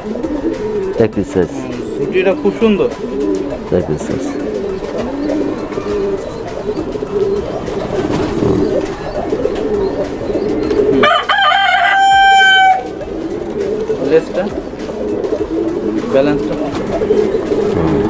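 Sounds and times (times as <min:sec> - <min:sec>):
pigeons cooing: 0:00.0 - 0:18.0
loud crowing call: 0:10.9 - 0:13.1.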